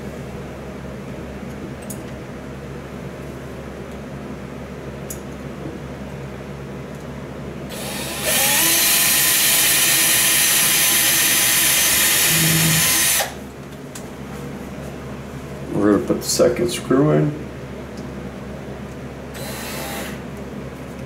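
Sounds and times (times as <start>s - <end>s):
electric drill drilling into wall: 7.7s - 13.4s, 19.4s - 20.2s.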